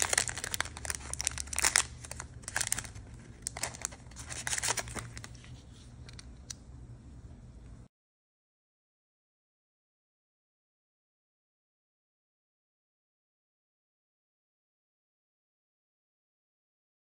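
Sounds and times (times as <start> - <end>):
paper rustling: 0.0 - 6.2
plastic packaging crinkling and tearing: 0.0 - 6.2.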